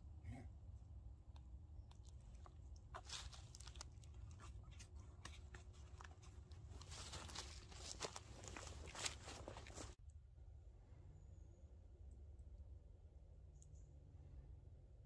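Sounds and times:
backpack rustling: 3.0s - 10.0s.

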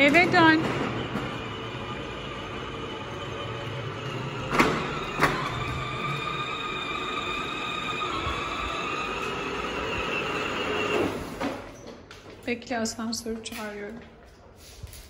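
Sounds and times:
electric motor and gearbox whine: 1.1s - 11.2s.

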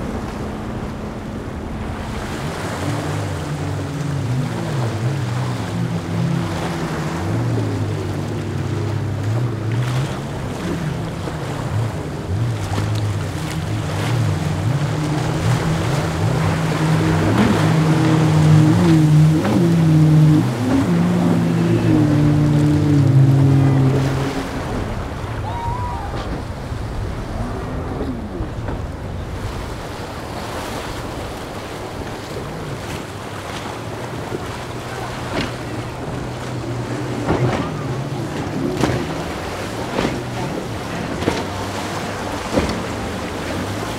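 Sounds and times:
hull slapping waves: 0.0s - 43.9s
outboard engines running hard: 0.0s - 43.9s
rushing water: 0.0s - 43.9s.

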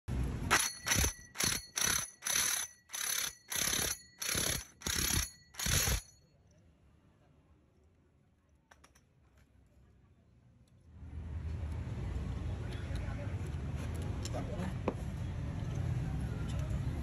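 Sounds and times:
impact wrench hammering: 0.5s - 6.1s.

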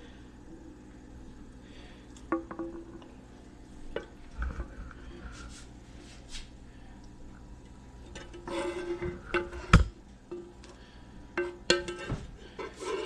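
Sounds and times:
low steady hum: 0.0s - 13.0s
metal spoon scraping pan: 8.1s - 9.8s, 11.4s - 13.0s.

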